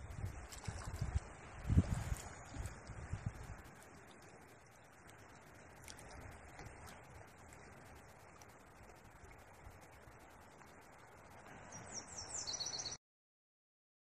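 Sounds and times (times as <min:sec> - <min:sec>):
faint outdoor rush: 0:00.0 - 0:13.0
songbird singing high notes: 0:11.7 - 0:13.0.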